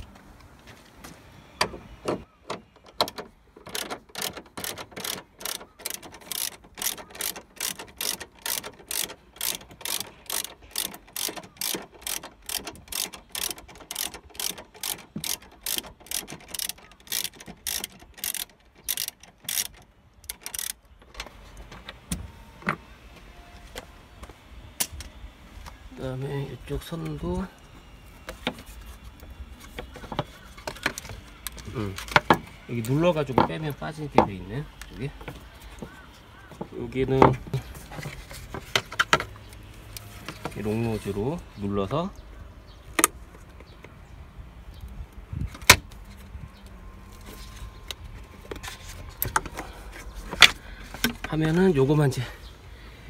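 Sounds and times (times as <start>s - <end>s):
ratchet wrench clicking: 3.7s - 20.8s.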